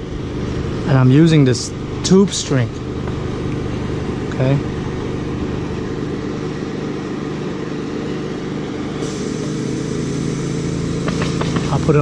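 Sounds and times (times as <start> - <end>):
steady mechanical drone: 0.0 - 12.0.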